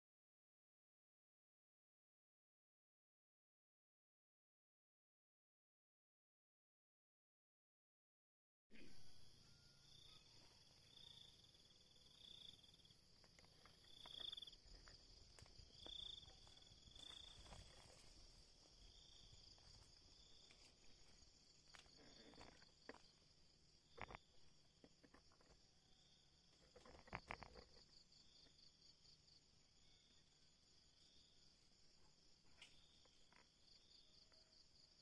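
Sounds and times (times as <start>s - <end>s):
insect chirp: 8.8s - 35.0s
insect chorus drone: 8.8s - 35.0s.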